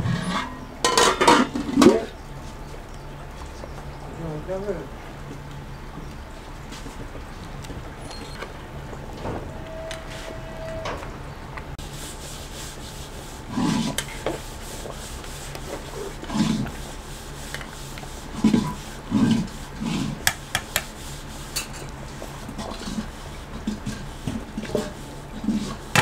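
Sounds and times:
ladle scraping metal pot: 0.0s - 2.2s, 8.1s - 11.1s.

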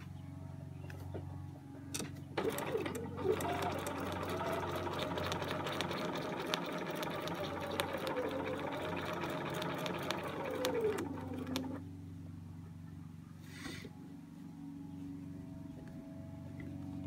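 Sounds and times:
low hum: 0.0s - 17.0s
sewing machine stitching: 2.4s - 11.8s.

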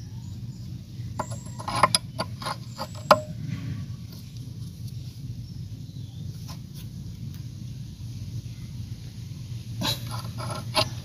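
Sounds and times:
steady low rumble: 3.1s - 11.0s.

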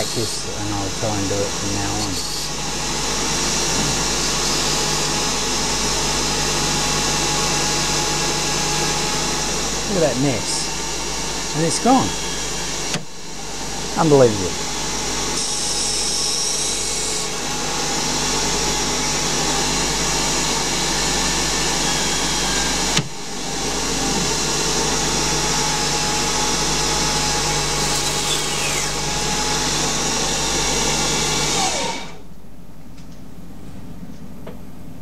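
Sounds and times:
steady whining tones: 0.0s - 26.4s
lathe spindle whirring: 0.0s - 32.2s.

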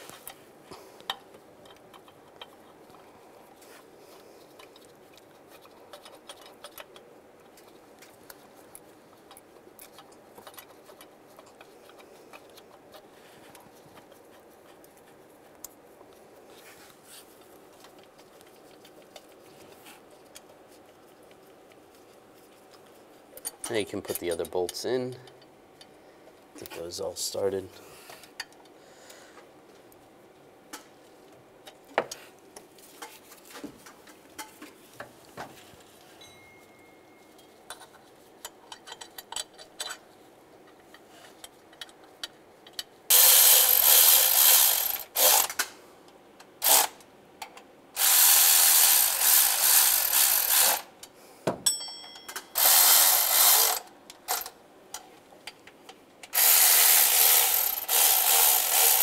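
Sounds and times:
cordless electric ratchet running: 43.1s - 45.5s, 46.6s - 46.9s, 48.0s - 50.9s, 52.6s - 54.5s, 56.4s - 59.0s.

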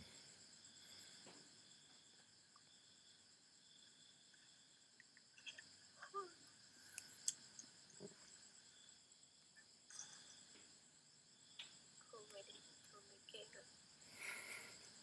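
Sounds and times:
high-pitched insect chirping: 0.0s - 15.0s.

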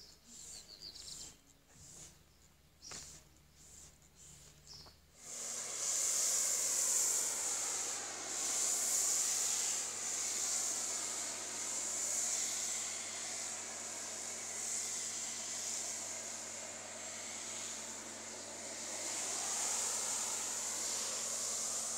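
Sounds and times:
foam spray hissing: 2.9s - 21.9s.

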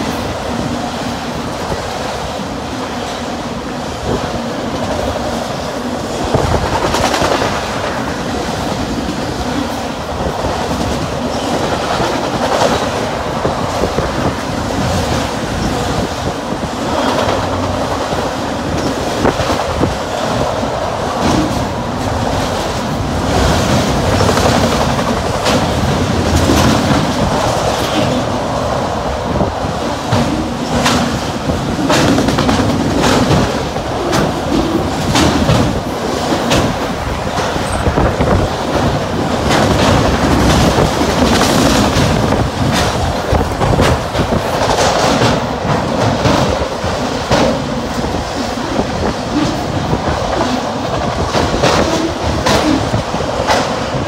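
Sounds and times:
freight train rumble: 0.0s - 54.0s
train wheels clacking on rails: 0.0s - 54.0s.

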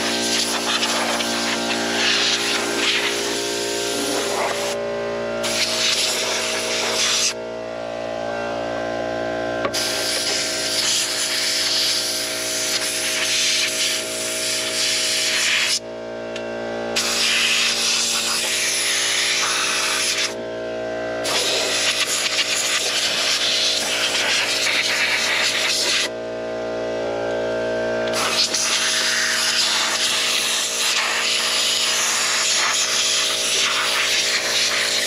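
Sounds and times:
air blow gun hissing bursts: 0.0s - 4.8s, 5.4s - 7.4s, 9.7s - 15.8s, 17.0s - 20.4s, 21.2s - 26.1s, 28.1s - 35.0s
steady hum: 0.0s - 35.0s.

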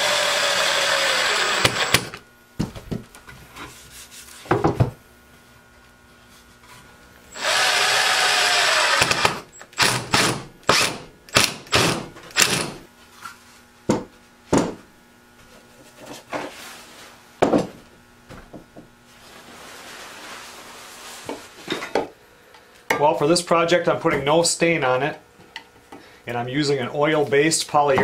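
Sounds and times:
small power tool running: 0.0s - 2.2s, 7.3s - 12.8s
wooden stool knocking on workbench: 4.5s - 5.0s, 17.4s - 18.9s.

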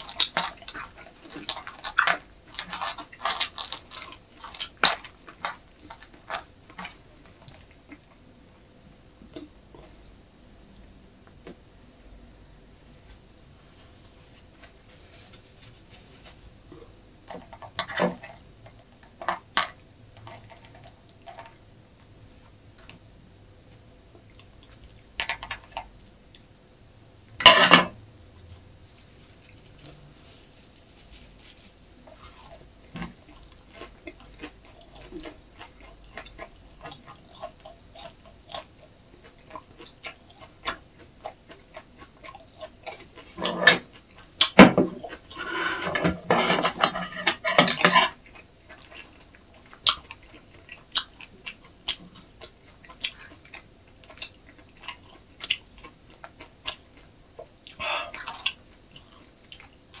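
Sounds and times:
chewing: 0.0s - 8.2s, 13.8s - 21.7s, 24.2s - 26.5s, 29.4s - 46.2s, 46.8s - 60.0s.

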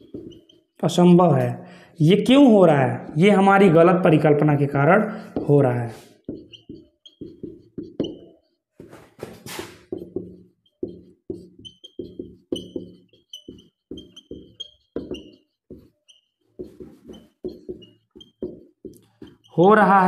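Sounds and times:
marker squeaking on whiteboard: 0.0s - 1.5s, 2.2s - 20.0s.

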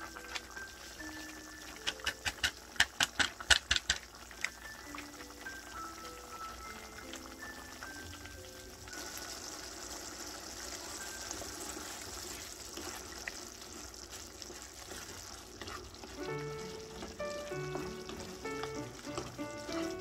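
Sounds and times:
background music with melody: 0.0s - 2.7s, 4.5s - 9.2s, 16.1s - 20.0s
wooden spatula stirring: 0.0s - 8.1s, 8.8s - 20.0s
sauce bubbling and sizzling in a pan: 0.0s - 20.0s.

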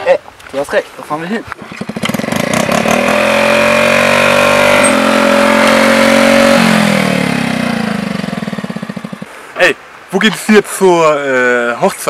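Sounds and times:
motorcycle passing by: 1.7s - 9.3s.

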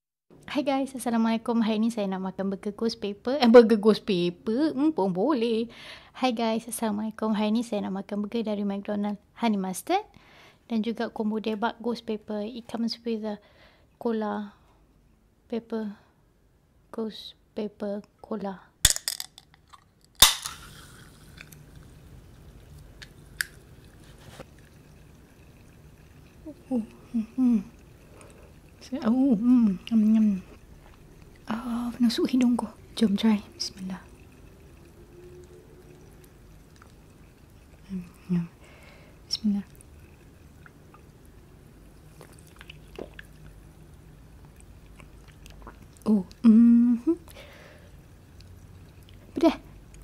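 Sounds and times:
can ring-pull popping open: 20.1s - 21.6s
sipping and swallowing cola: 20.6s - 38.6s, 39.2s - 50.0s.

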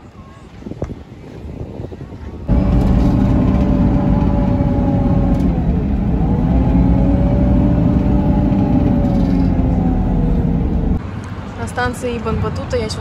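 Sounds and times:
vehicle low rumble: 2.5s - 11.4s
faint vehicle whine: 2.5s - 13.0s.

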